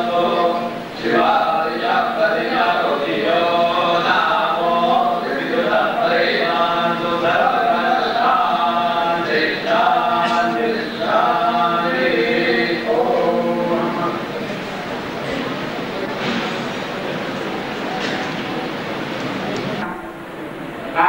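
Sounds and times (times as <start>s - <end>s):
men chanting together: 0.0s - 14.2s.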